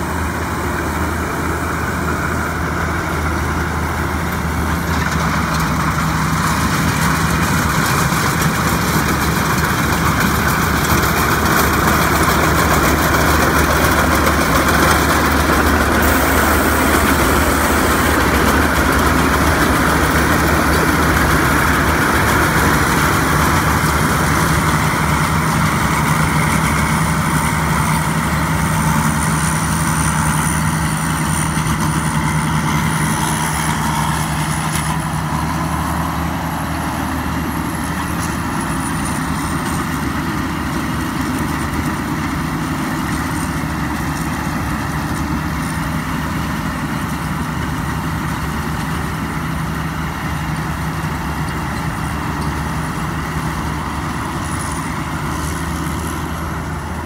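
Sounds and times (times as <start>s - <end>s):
harvester engine drone: 0.0s - 57.0s.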